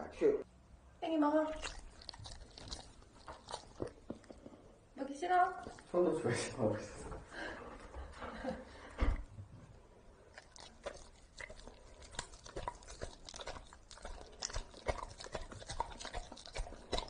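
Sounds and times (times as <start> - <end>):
dog chewing: 1.3 - 7.1, 9.8 - 17.0.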